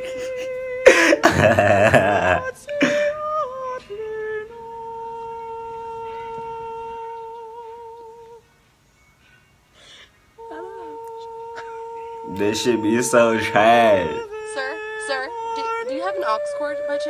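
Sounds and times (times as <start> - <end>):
person holding long vocal note: 0.0 - 8.4, 10.4 - 17.0
loud wobbling vocal wail: 10.4 - 17.0.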